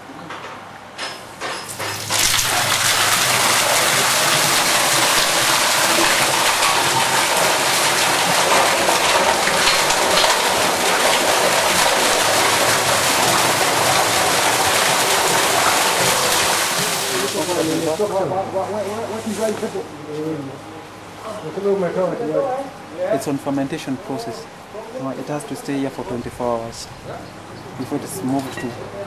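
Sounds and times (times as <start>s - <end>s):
water gushing into a concrete tank: 1.7s - 18.2s.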